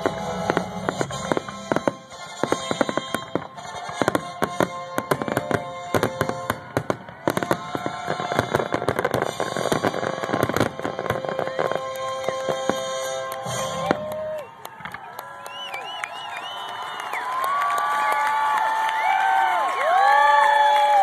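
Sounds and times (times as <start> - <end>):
fireworks bursting: 0.0 - 16.9.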